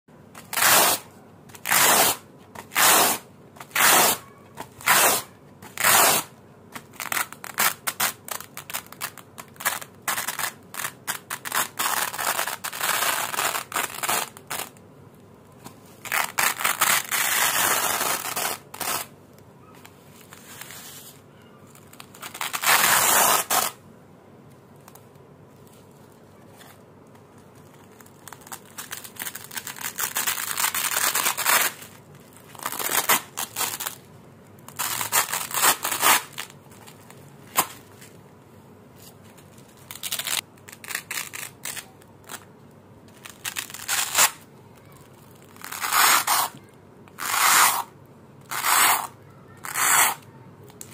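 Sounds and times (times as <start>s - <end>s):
hook-and-loop strips ripping apart: 4.8s - 14.8s, 16.0s - 19.1s, 21.7s - 23.8s, 27.8s - 34.0s, 34.7s - 36.6s, 39.6s - 42.5s, 43.1s - 46.6s, 47.2s - 47.9s, 48.5s - 50.9s.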